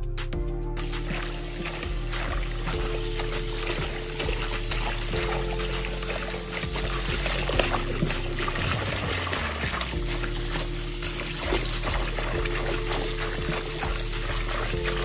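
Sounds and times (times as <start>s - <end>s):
background music: 0.0s - 15.0s
water splashing: 0.8s - 15.0s.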